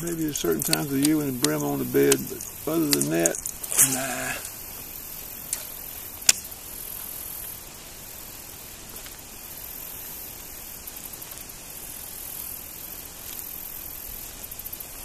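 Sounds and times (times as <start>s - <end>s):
faint rapid ticking: 0.0s - 7.6s
steady outdoor hiss: 0.0s - 15.0s.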